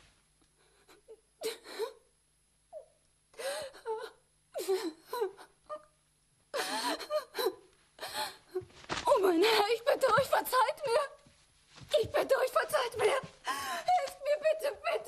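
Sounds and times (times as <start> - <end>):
woman wailing and sobbing: 12.3 - 15.0.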